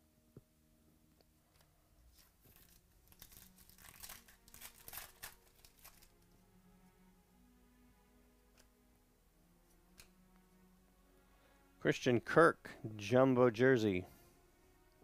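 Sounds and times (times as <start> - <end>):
packaging crinkling: 2.1 - 6.2.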